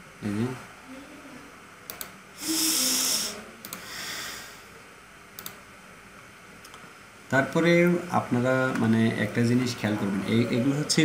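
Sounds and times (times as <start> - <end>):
person breathing into microphone: 2.4 - 4.7
mouse clicks: 3.6 - 3.8, 5.4 - 5.6.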